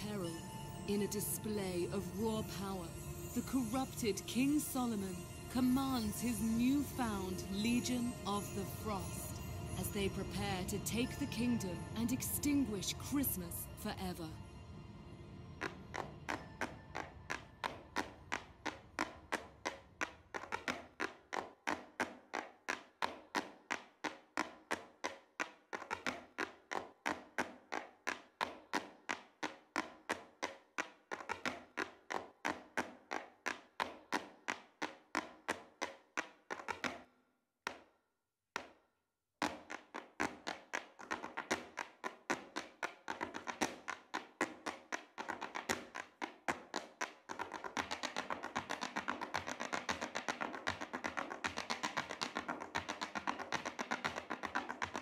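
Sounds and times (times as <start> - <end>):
hard shoes tapping on stage: 15.6 - 37.1, 37.7 - 38.0, 39.4 - 55.0.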